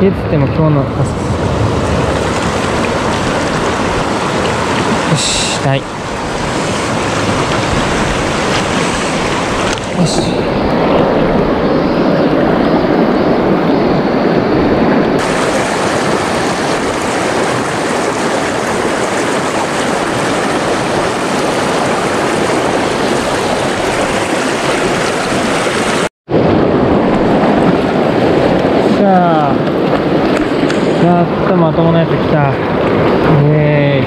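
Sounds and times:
river rapids rushing: 0.9s - 12.4s, 15.2s - 26.1s.

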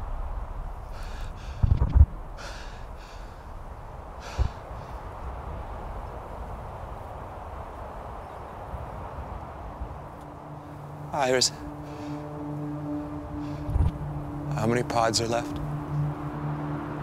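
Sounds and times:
low thumps: 0.0s - 6.4s, 11.8s - 14.6s
steady rushing background: 0.0s - 17.0s
man gasping breaths: 2.4s - 3.5s.

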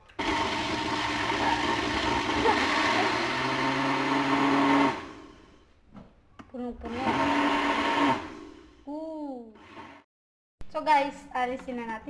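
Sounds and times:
blender motor running: 0.1s - 5.6s, 6.9s - 8.8s.

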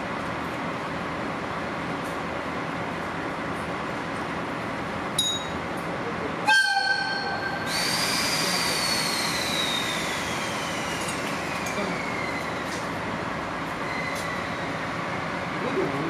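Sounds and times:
locomotive horn blast: 6.5s - 7.6s
long whistling hiss: 7.6s - 12.6s.

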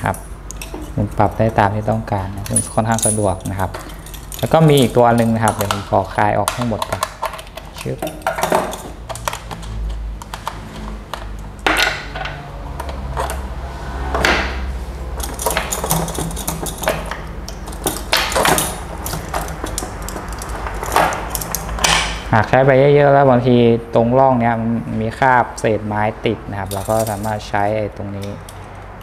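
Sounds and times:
chain links jingling: 0.0s - 5.7s, 15.2s - 21.8s, 26.7s - 27.4s
sharp metallic clinks: 0.0s - 5.8s, 26.7s - 27.4s
chainsaw parts rattling: 0.0s - 9.8s, 15.2s - 22.2s, 26.7s - 27.4s.

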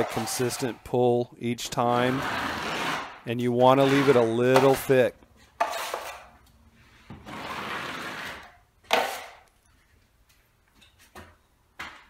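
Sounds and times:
taping knife scraping ceiling: 1.9s - 4.9s, 5.5s - 9.4s.

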